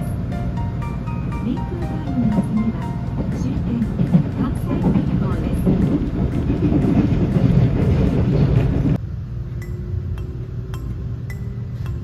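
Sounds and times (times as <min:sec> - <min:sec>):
soft chiming background music: 0:00.0 - 0:04.4
train rumbling inside carriage: 0:00.0 - 0:12.0.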